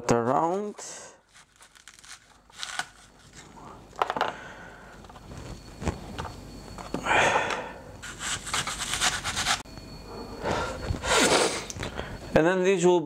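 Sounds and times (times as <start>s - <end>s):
knife cutting onion: 1.3s - 3.1s, 8.0s - 9.6s.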